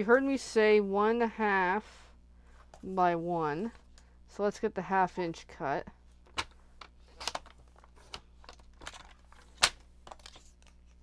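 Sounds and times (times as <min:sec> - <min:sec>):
paper crinkles: 0:07.2 - 0:11.0.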